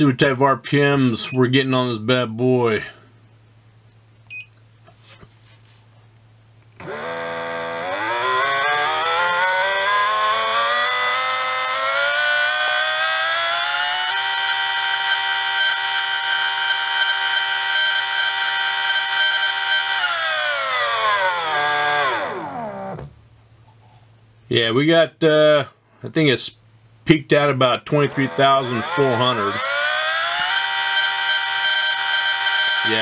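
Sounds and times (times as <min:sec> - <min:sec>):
electric motor whine: 0:06.8 - 0:23.1, 0:28.0 - 0:33.0.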